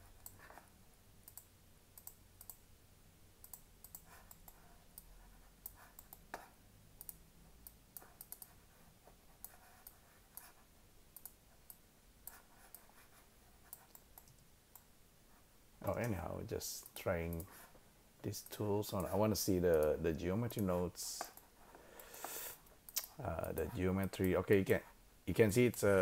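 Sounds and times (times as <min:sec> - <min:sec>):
computer mouse clicking: 0:01.2 - 0:02.6, 0:03.4 - 0:08.6, 0:09.4 - 0:10.6, 0:11.2 - 0:14.9.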